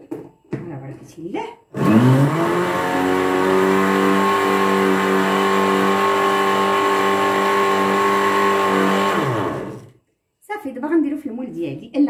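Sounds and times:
electric blender running: 1.8 - 9.9.

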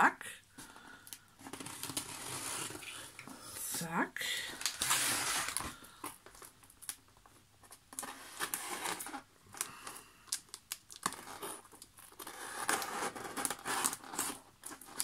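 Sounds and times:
pen scraping and tearing tape: 11.0 - 15.0.

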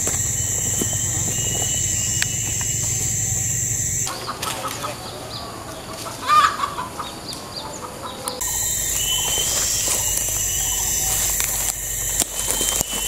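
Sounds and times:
high-pitched insect drone: 0.0 - 4.1, 8.4 - 13.0
clucking bird calls: 0.0 - 13.0.

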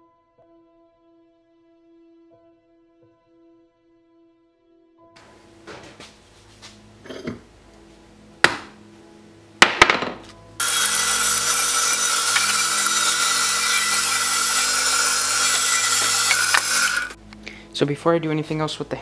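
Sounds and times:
sharp knocks and clatters: 9.6 - 10.3
bandsaw cutting resin: 10.6 - 17.2
steady whine: 10.6 - 17.4.

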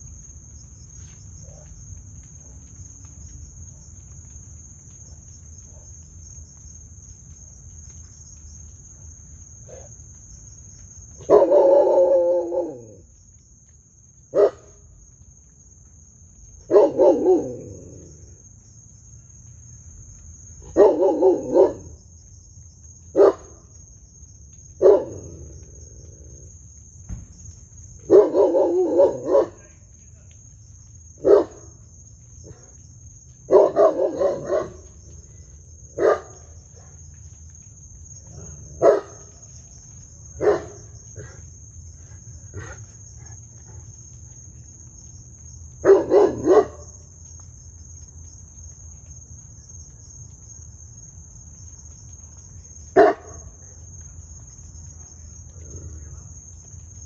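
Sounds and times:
crickets chirring: 0.0 - 57.0
dog barking: 11.2 - 13.0, 14.3 - 14.8, 16.6 - 18.0, 20.6 - 21.9, 23.2 - 23.5, 24.8 - 25.4, 28.0 - 29.8, 31.2 - 31.7, 33.5 - 34.9, 36.0 - 37.0, 38.4 - 39.4, 40.4 - 41.4, 45.8 - 46.9, 53.0 - 53.8.

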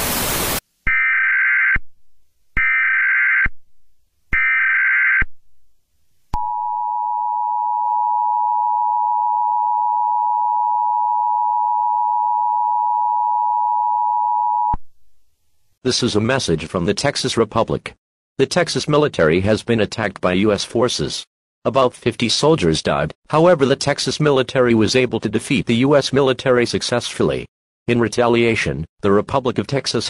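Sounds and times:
tv static hiss: 0.0 - 0.6.

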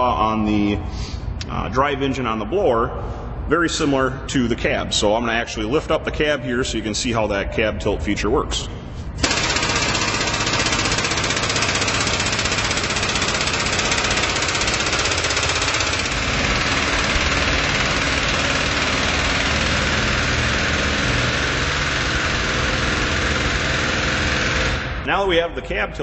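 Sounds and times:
hydraulic pump pulsing: 9.2 - 25.0.

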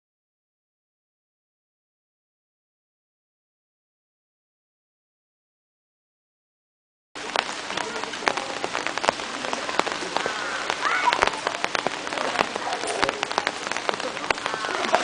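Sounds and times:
rain with raindrop taps: 7.2 - 15.0.

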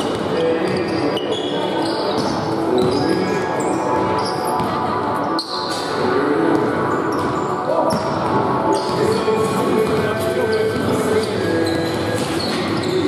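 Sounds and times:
basketballs bouncing on wood floor: 2.1 - 3.3, 6.6 - 13.0.

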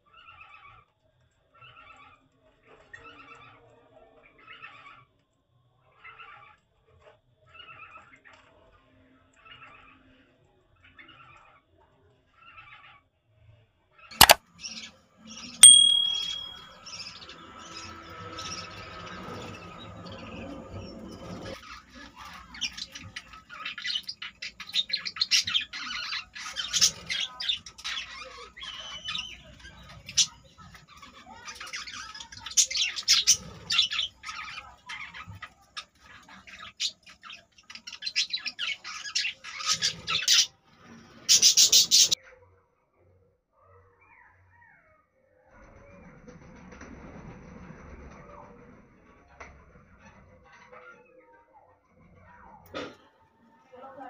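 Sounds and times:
sharp click with ringing tone: 15.6 - 16.7.

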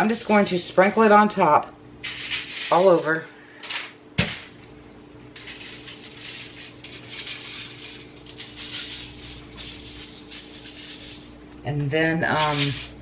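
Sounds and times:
granules landing on foil: 0.0 - 1.2, 2.0 - 4.6, 5.3 - 11.3, 12.3 - 13.0
salt shaker rattling: 0.0 - 1.2, 2.0 - 3.2, 5.4 - 11.3, 12.4 - 13.0.

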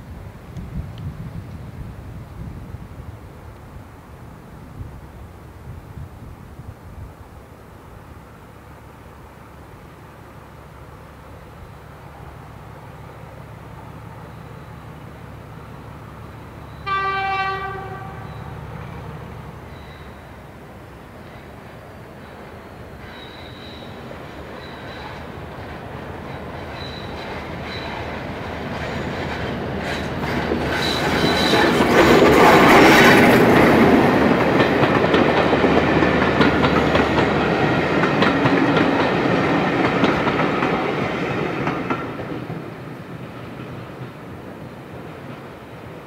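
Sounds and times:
diesel locomotive engine: 0.0 - 46.0
wheels clicking over rail joints: 21.2 - 46.0.

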